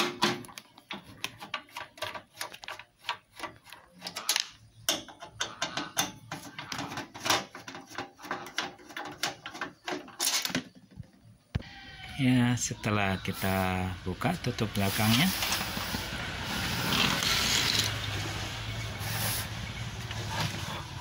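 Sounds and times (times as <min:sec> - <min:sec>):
screwdriver clicking and scraping: 0:00.4 - 0:10.6.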